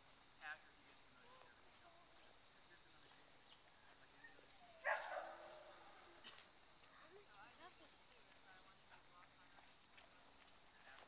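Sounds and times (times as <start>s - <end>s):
dog barking: 4.8s - 5.8s.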